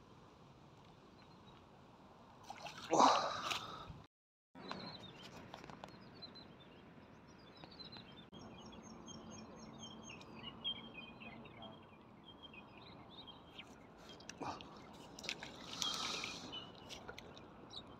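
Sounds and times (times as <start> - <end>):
faint outdoor ambience: 0.0 - 17.9
small birds chirping: 4.6 - 17.9.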